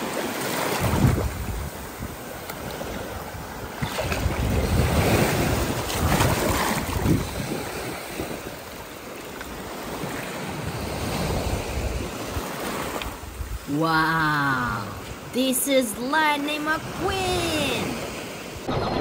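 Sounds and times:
surf washing over sand: 0.0 - 19.0
wind buffeting microphone: 0.7 - 8.7.

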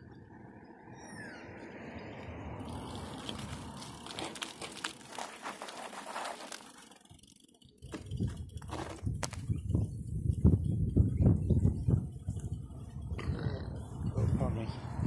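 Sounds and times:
bicycle tyres crunching on gravel: 2.1 - 9.7.

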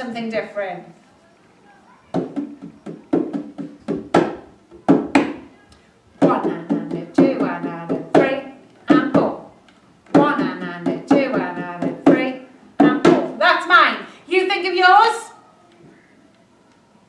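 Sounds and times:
hand drum played by hand: 2.2 - 5.4, 6.2 - 9.3, 10.2 - 13.3
steady backing beat: 2.2 - 5.4, 6.2 - 9.4, 10.1 - 13.4.

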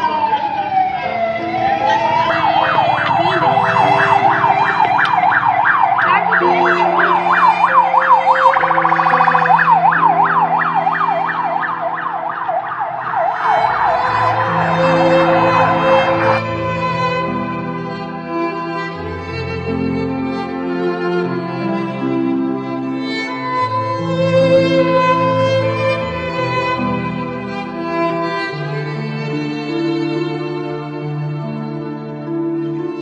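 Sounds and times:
emergency siren wailing and yelping: 0.0 - 17.6
slow background music: 0.1 - 28.1.

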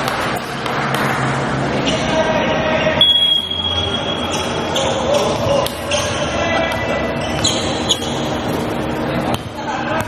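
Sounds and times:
players' voices and calls: 0.0 - 10.0
high steady tone: 2.8 - 4.8.

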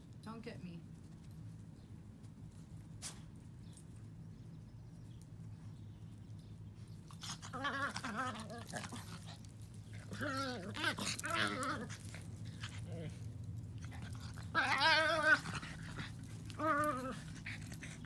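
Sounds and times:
dogs whine-growling: 6.9 - 18.0.

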